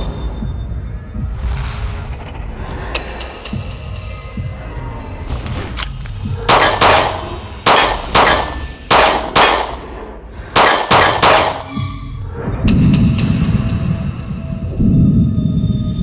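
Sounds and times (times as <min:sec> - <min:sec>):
pistol gunshots: 0:06.5 - 0:09.8, 0:10.6 - 0:11.7.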